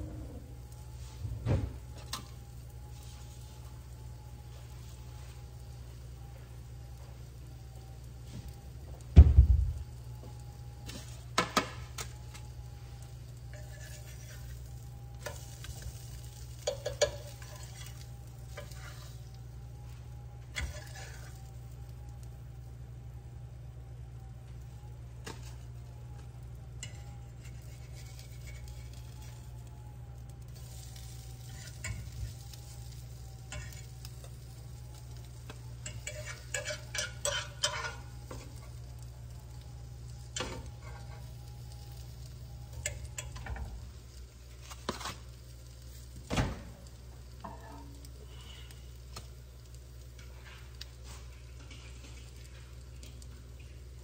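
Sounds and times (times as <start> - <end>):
eggs and bacon sizzling: 0.0 - 54.0
steady low hum: 0.0 - 54.0
spatula scraping and tapping pan: 13.4 - 19.3, 20.5 - 21.4, 26.8 - 29.4, 31.4 - 32.5, 33.4 - 34.4, 35.5 - 39.0, 40.2 - 41.4, 47.4 - 48.0, 50.2 - 53.7.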